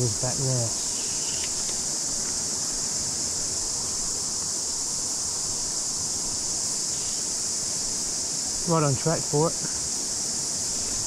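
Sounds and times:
cicadas buzzing: 0.0 - 11.0
low even hiss: 0.0 - 11.0.

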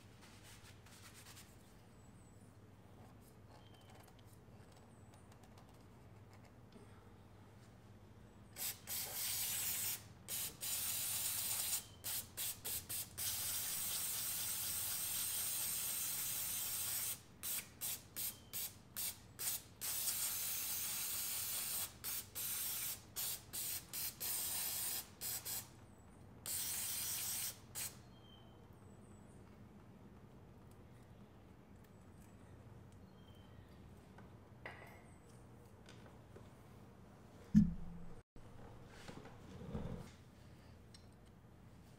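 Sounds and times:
aerosol spray hissing: 8.6 - 25.6.

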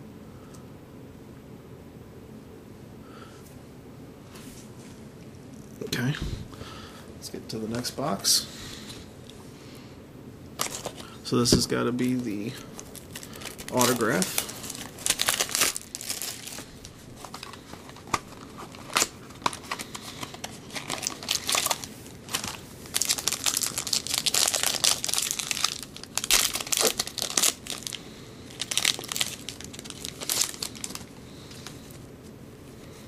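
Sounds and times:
plastic wrapping crinkling and tearing: 10.6 - 11.2, 12.0 - 32.0.

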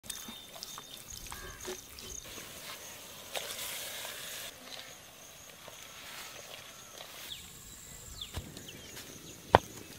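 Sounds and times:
rushing water hiss: 1.0 - 4.8.

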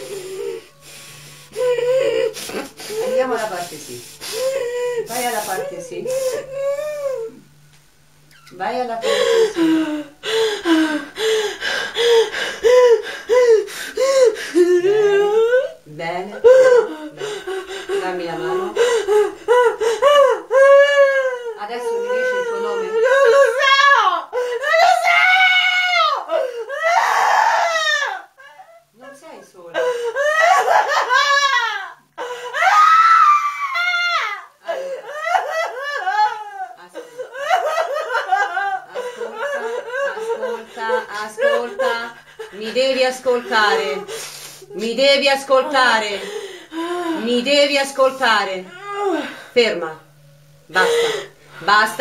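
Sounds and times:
woman sobbing and wailing: 0.0 - 7.5, 8.7 - 52.0.

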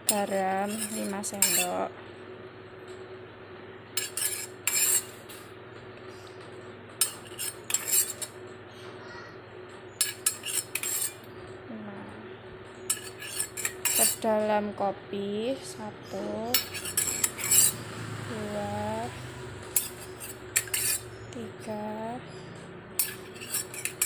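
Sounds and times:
metal spoon clinking cup and bowls: 0.1 - 1.8, 10.0 - 11.2, 12.9 - 14.2, 16.6 - 17.8, 19.8 - 21.0, 23.0 - 24.0.

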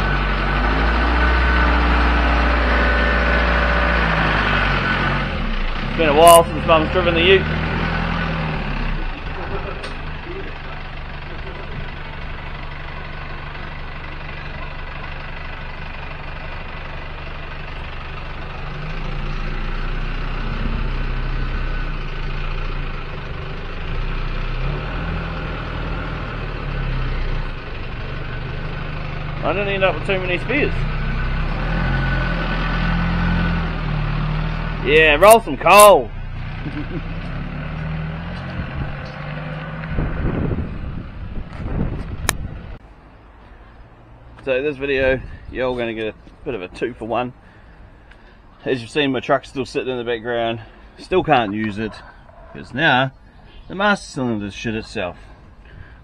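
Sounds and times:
vehicle engine revving: 0.0 - 42.8
wind buffeting microphone: 38.4 - 39.2, 39.8 - 42.8.

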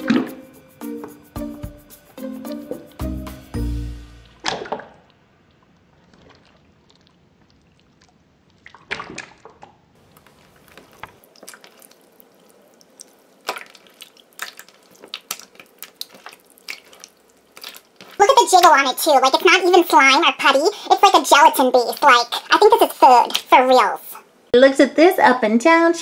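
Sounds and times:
slime squelching: 4.1 - 24.3.

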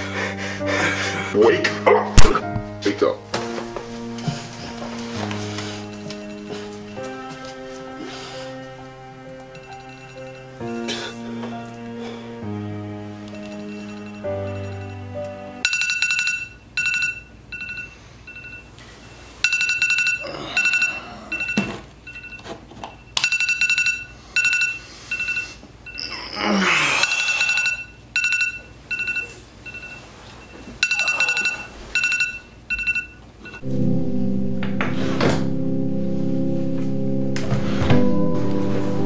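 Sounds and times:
alarm beeping: 32.8 - 39.0.

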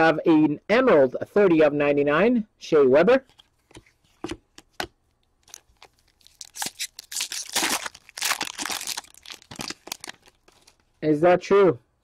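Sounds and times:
packaging crinkling and rustling: 3.3 - 11.0.

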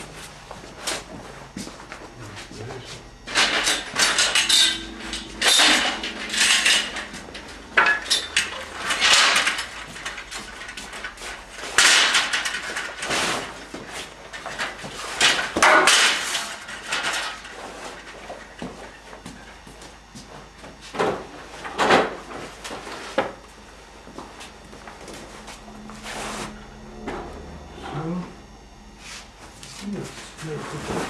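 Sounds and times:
hard objects clattering: 3.3 - 18.8.

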